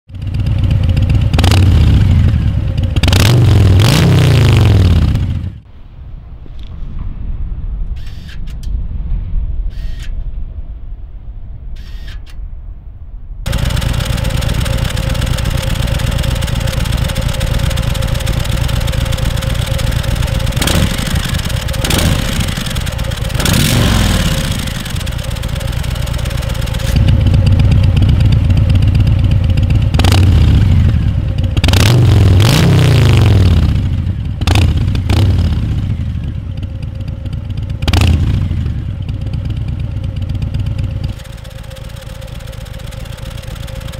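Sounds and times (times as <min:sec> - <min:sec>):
motorcycle engine idling and revving: 0:00.0 - 0:05.7, 0:13.4 - 0:43.9.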